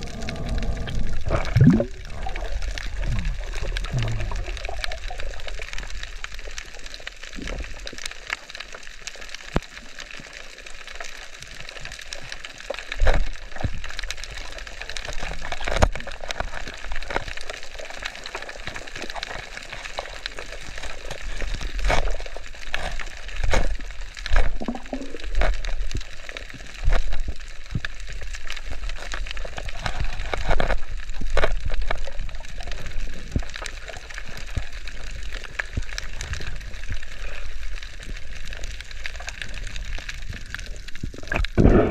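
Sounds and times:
low whooshes of water: 0.0 - 4.5
underwater crackling hiss with clicks: 0.0 - 41.9.

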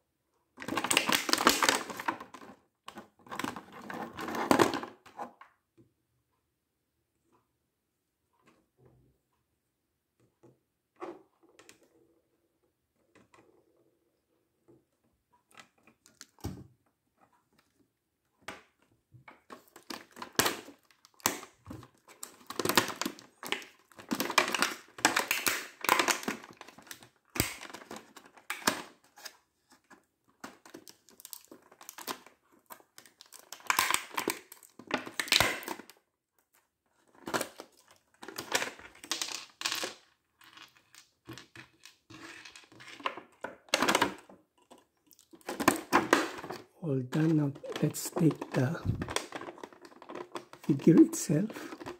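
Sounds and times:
plastic tray crinkling: 37.1 - 51.9.

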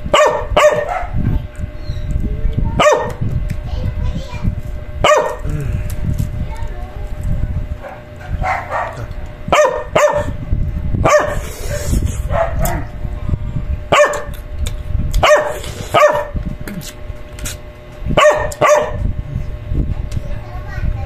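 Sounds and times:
dog barking: 0.1 - 1.3, 2.8 - 3.2, 5.0 - 5.4, 7.8 - 10.4, 11.0 - 12.9, 13.9 - 14.3, 15.2 - 16.4, 18.2 - 19.0.

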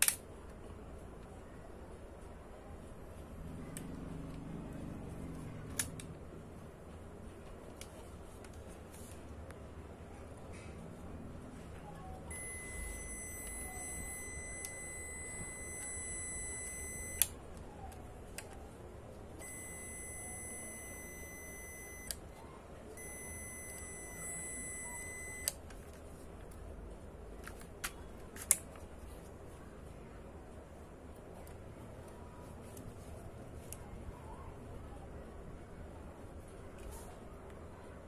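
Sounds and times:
sharp mechanical clicks: 0.0 - 0.3
camera high beep: 12.3 - 17.2, 19.4 - 22.1, 23.0 - 25.5.

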